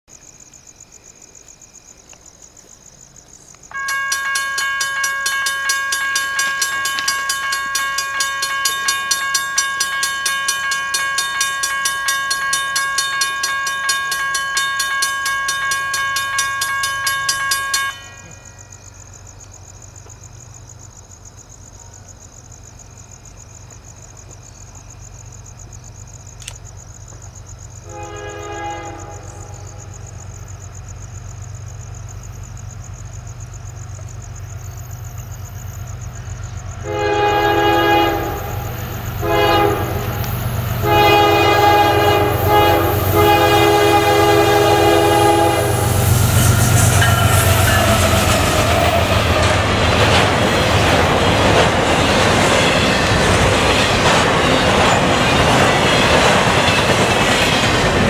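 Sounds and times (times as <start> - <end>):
locomotive horn blast: 3.7 - 18.4, 27.8 - 30.1, 36.8 - 51.0
crossing warning bell ringing: 3.7 - 19.3, 35.8 - 58.0
diesel locomotive rumble: 19.9 - 58.0.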